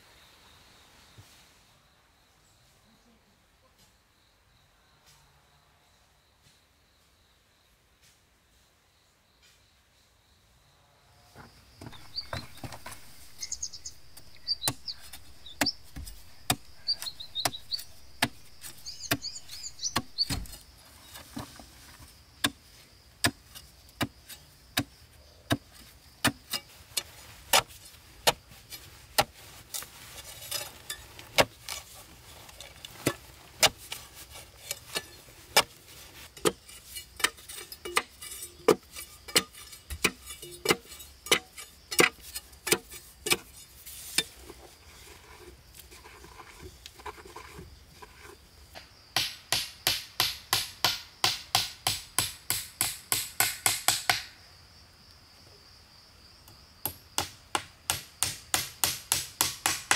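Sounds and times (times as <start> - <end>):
birds chirping: 11.8 - 21.2
hand tool striking wood: 11.8 - 22.6, 23.2 - 28.4, 29.1 - 31.9, 33.0 - 35.8, 36.4 - 43.5, 49.2 - 54.3, 56.8 - 59.9.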